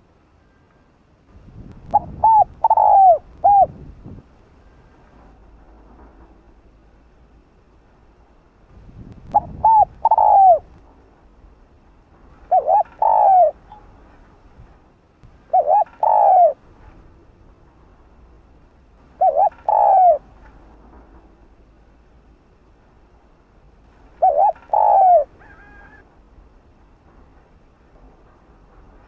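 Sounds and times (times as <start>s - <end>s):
dove cooing: 1.9s - 3.8s, 9.3s - 10.7s, 12.4s - 13.6s, 15.5s - 16.6s, 19.2s - 20.3s, 24.2s - 26.1s.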